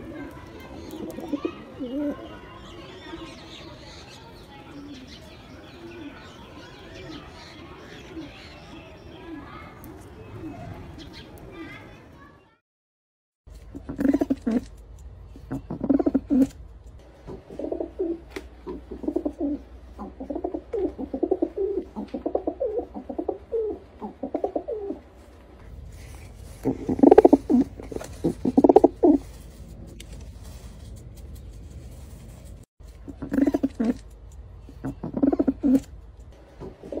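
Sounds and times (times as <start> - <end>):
pigeons cooing: 0.0 - 11.9, 13.9 - 14.6, 15.4 - 16.6, 17.3 - 25.2, 26.4 - 29.4, 33.1 - 34.0, 34.7 - 36.0, 36.6 - 37.0.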